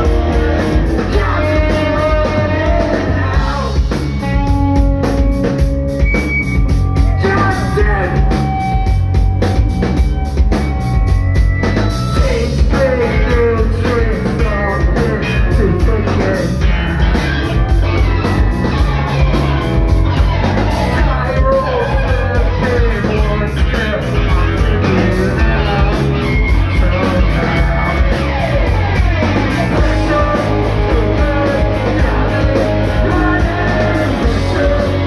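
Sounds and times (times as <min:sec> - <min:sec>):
punk rock band playing live: 0:00.0 - 0:35.0
person singing: 0:01.0 - 0:04.0, 0:12.2 - 0:16.7, 0:20.5 - 0:35.0.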